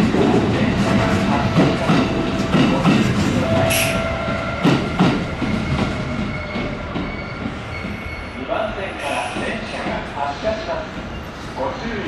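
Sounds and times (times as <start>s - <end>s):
train wheels knocking on rail joints: 0.0s - 8.1s
high wheel squeal: 5.2s - 9.4s.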